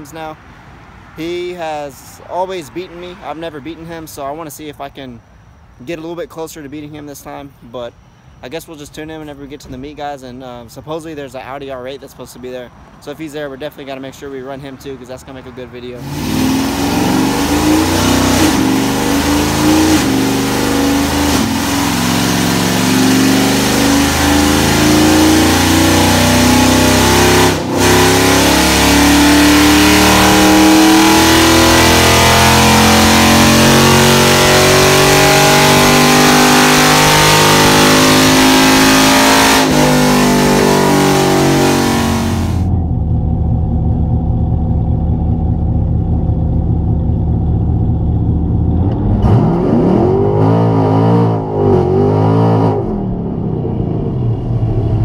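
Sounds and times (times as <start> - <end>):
car engine revving through gears: 16.0 - 43.1, 48.2 - 55.0.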